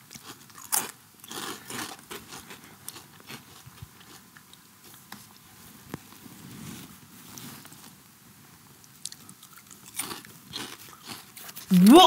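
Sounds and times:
crisps crunching being chewed: 0.0s - 5.4s, 8.8s - 11.9s.

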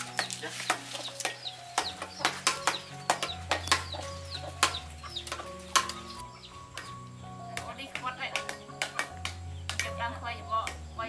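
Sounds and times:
knives chopping fruit: 0.0s - 10.0s
soft background music: 0.0s - 11.0s.

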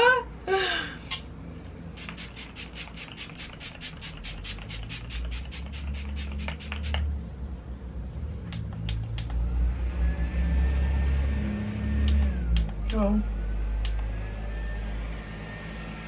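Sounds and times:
spray bottle hisses: 2.0s - 7.0s.

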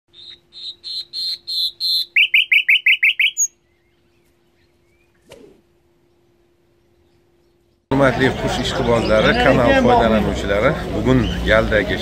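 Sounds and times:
songbird singing: 0.1s - 8.0s, 10.9s - 11.8s
faint steady hum: 0.1s - 12.0s.

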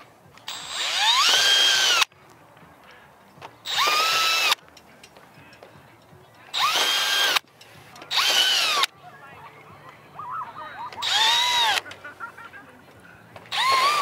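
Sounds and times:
cordless drill whining: 0.5s - 2.1s, 3.6s - 4.6s, 6.5s - 7.4s, 8.1s - 8.9s, 11.0s - 11.8s, 13.5s - 14.0s.

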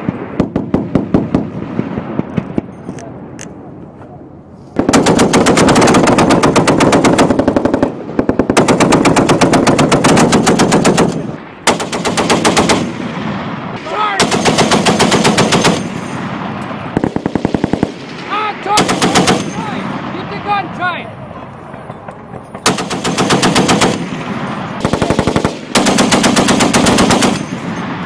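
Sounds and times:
machine gun firing bursts: 4.8s - 13.1s, 14.2s - 16.2s, 17.0s - 19.6s, 22.6s - 27.9s.

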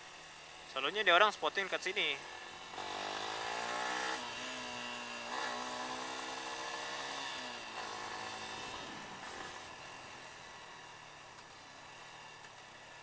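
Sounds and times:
motorcycle engine: 0.0s - 13.0s.

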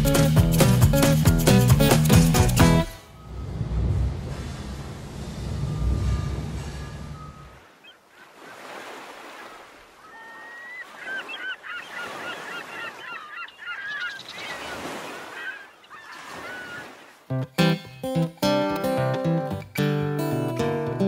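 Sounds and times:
waves washing: 0.0s - 17.3s
gulls calling: 5.4s - 17.2s.

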